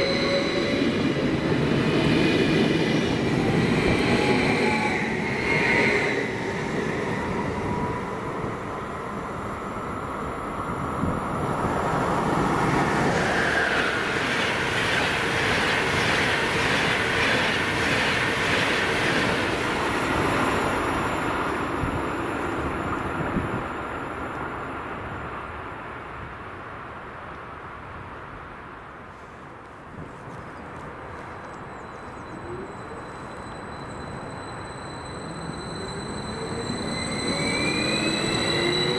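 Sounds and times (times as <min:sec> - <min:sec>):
train wheels on rails: 0:11.0 - 0:23.6, 0:29.2 - 0:38.9.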